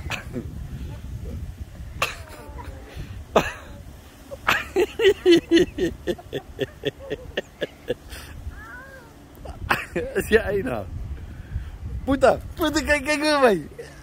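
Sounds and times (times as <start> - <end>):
child giggling: 2.0 - 10.2.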